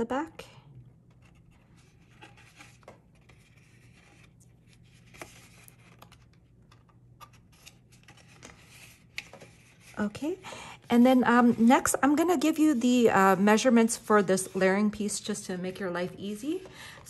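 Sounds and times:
low steady hum: 0:00.0 - 0:17.0
cardstock rustling and rubbing: 0:01.0 - 0:10.2.

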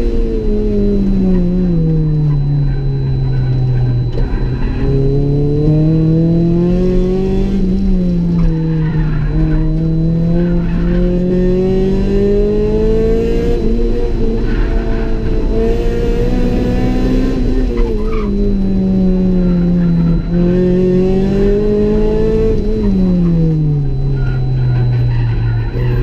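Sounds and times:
car engine under load: 0:00.0 - 0:26.0.

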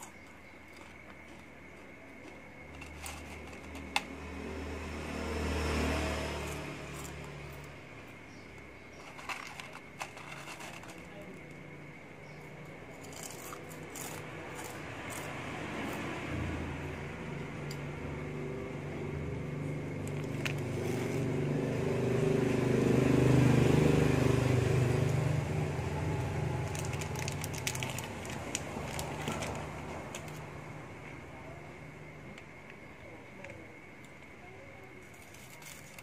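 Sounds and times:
vehicle engine hum: 0:00.0 - 0:36.0
snack wrappers crinkling: 0:26.5 - 0:30.4, 0:35.1 - 0:36.0.

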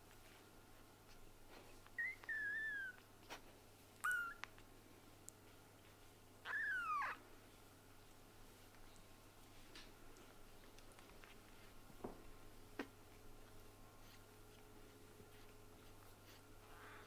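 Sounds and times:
kitten mewing: 0:04.0 - 0:04.4, 0:06.4 - 0:07.2.

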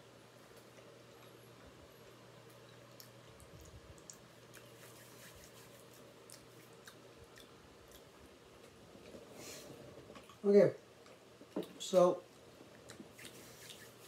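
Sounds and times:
soft chewing mouth clicks: 0:02.4 - 0:09.2, 0:12.4 - 0:13.9.

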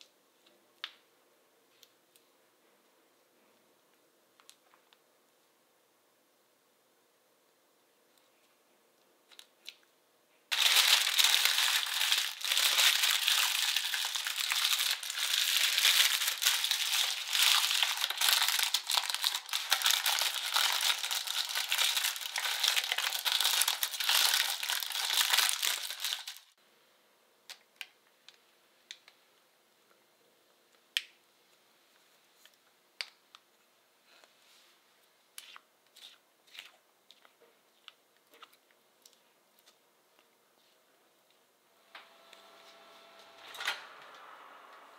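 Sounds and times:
parchment paper crinkling: 0:10.5 - 0:26.6.

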